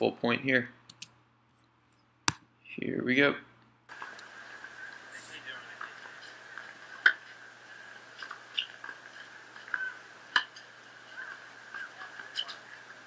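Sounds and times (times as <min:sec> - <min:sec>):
tennis racket hitting ball: 0:09.7 - 0:10.5.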